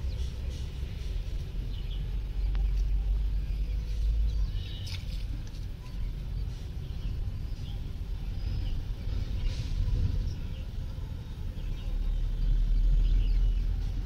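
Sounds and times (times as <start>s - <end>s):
bird chirps: 0.0s - 10.8s.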